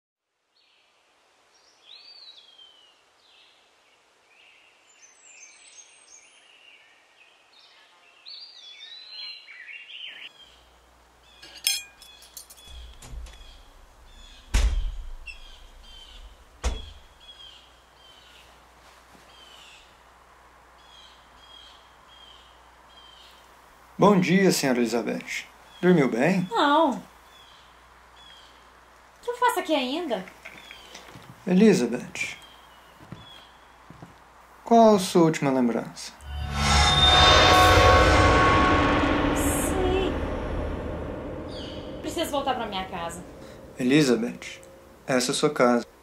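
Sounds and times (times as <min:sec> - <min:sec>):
sharp knocks: 0:16.6 - 0:17.0
birds chirping and singing: 0:41.4 - 0:44.6.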